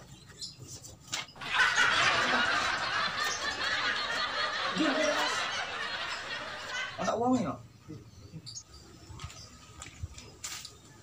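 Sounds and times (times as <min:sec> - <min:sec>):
people laughing: 0:01.4 - 0:07.4.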